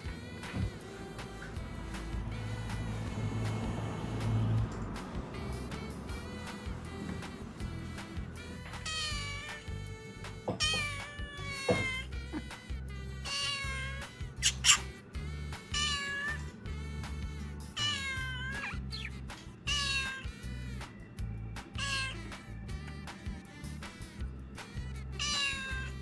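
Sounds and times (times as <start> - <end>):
background music with beat: 0.0 - 16.0, 20.4 - 25.4
cat meowing: 8.7 - 9.7, 10.5 - 12.1, 13.2 - 14.9, 15.7 - 16.5, 17.8 - 20.5, 21.7 - 22.4, 25.1 - 26.0
sharp high cat cry: 8.8 - 9.6, 10.6 - 12.1, 13.2 - 14.9, 15.7 - 16.5, 17.8 - 19.1, 19.7 - 20.4, 21.8 - 22.3, 25.2 - 26.0.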